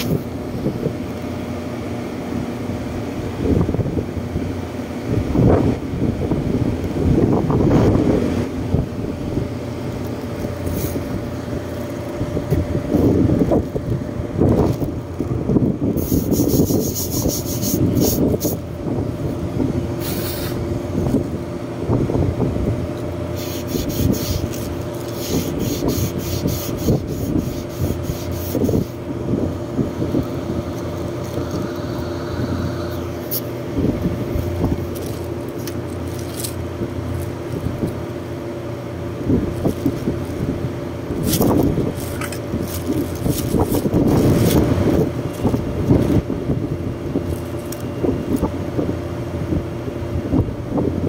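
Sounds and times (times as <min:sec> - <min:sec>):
air conditioning hum: 0:00.0 - 0:51.0
rustling and scraping: 0:10.0 - 0:15.4, 0:23.4 - 0:29.0, 0:30.1 - 0:38.0, 0:39.3 - 0:40.6, 0:41.2 - 0:46.4, 0:47.2 - 0:48.6.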